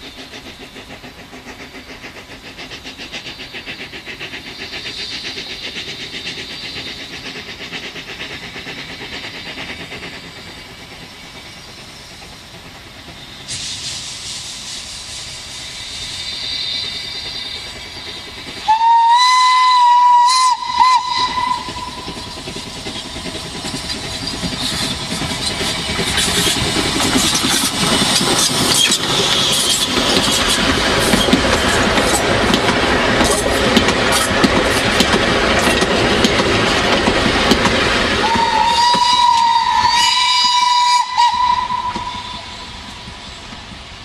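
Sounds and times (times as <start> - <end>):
steam locomotive passing: 0.0 - 44.0
steam locomotive whistle: 18.6 - 22.2, 38.2 - 43.0
wheels clattering on rails: 19.9 - 40.9.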